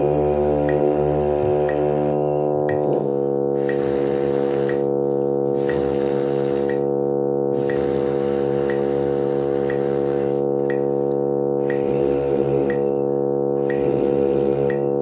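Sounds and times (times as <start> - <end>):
brass mouthpiece buzzing: 0.0 - 15.0
keyboard drone chord: 0.0 - 15.0
metronome clicks: 0.7 - 0.9, 1.6 - 1.9, 5.6 - 5.9, 6.7 - 6.9, 10.7 - 10.9, 11.7 - 11.9, 12.7 - 13.0, 13.7 - 13.9, 14.7 - 15.0.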